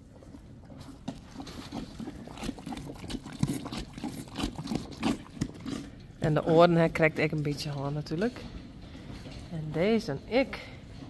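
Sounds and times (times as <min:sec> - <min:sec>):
horse crunching and chewing feed: 0:00.0 - 0:11.0.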